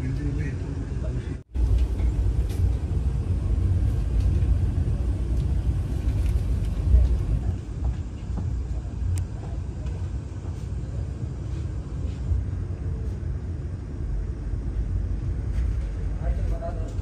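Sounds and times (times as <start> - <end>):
electric train rumbling: 0.0 - 17.0.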